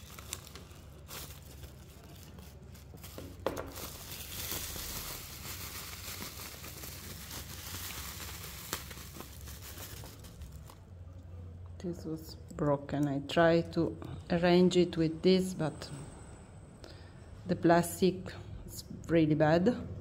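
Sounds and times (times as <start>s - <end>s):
bubble wrap crinkling: 0.0s - 10.9s
sharp crackle: 3.7s - 10.8s.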